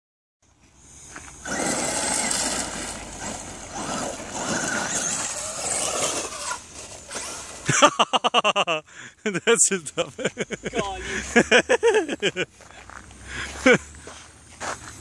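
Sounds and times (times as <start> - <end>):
tyres spraying gravel: 1.0 - 8.5
toy truck motor revving: 1.4 - 8.0.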